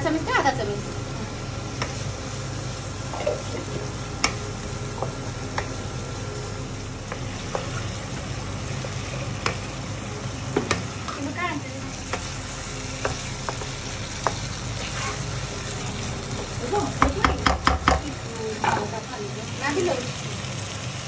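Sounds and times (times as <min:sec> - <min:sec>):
food frying in a wok: 0:00.0 - 0:21.0
spatula scraping and tapping pan: 0:01.7 - 0:02.1, 0:08.8 - 0:09.7.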